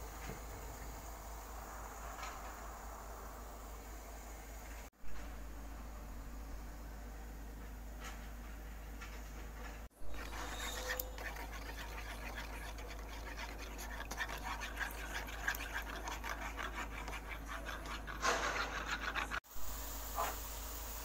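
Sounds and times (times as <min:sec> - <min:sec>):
steady low hum: 0:00.0 - 0:21.0
spoon scraping in small bowl: 0:10.0 - 0:19.4.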